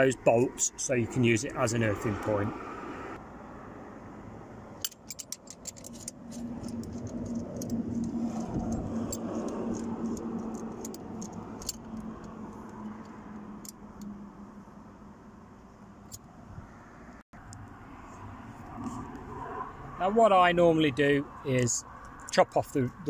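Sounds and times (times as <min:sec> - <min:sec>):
socket wrench ratchet clicking: 0:04.8 - 0:14.1.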